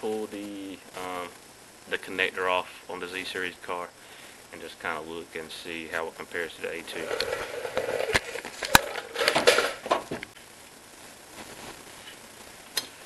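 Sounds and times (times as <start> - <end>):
handling noise: 7.0 - 10.3
clothing rustle: 11.2 - 12.3.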